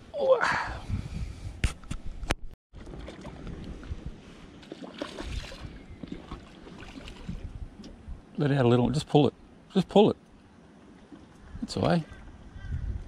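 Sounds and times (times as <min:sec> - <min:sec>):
splash in water: 0:02.8 - 0:03.5, 0:04.6 - 0:07.5.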